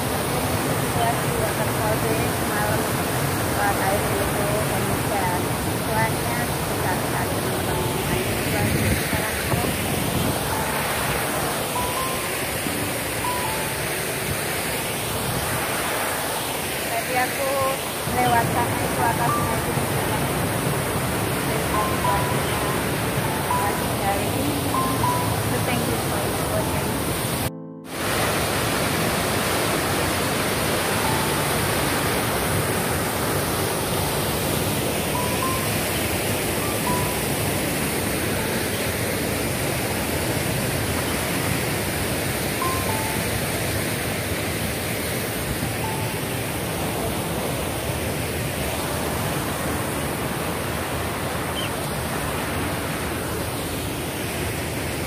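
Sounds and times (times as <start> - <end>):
stream running: 0.0 - 55.0.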